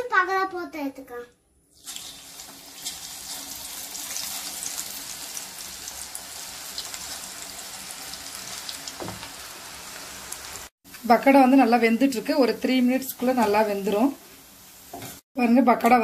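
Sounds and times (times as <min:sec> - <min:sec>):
batter deep-frying in hot oil: 0:01.7 - 0:16.0.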